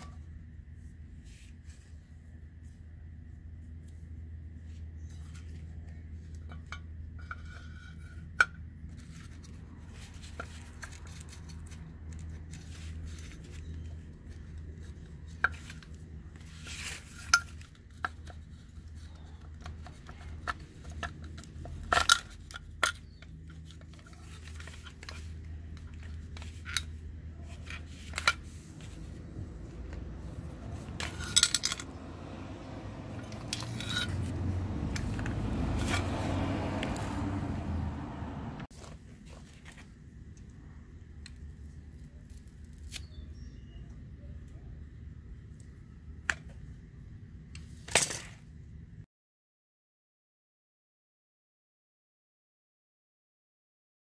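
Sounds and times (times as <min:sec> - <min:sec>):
metal parts clinking: 0:16.6 - 0:29.2, 0:30.2 - 0:36.1.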